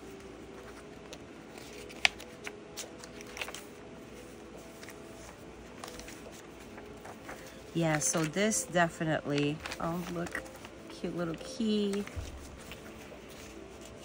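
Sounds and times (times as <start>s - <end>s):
paper rustling: 0.0s - 14.0s.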